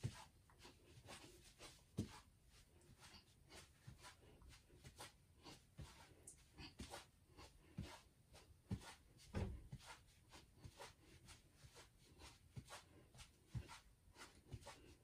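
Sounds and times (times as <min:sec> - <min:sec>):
feet thudding on floor: 0:08.7 - 0:10.0.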